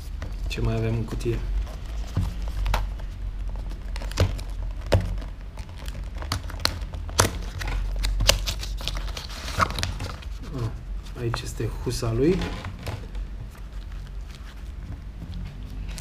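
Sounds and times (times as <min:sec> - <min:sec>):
cardboard box rustling: 0:00.2 - 0:11.5.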